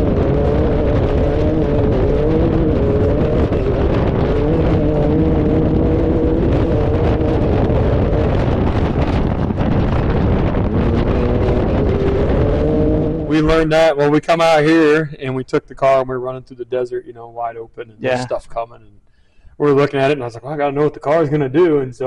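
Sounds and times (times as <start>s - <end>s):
race car engine at speed: 0.0s - 13.7s
wind rushing over microphone: 0.0s - 15.2s.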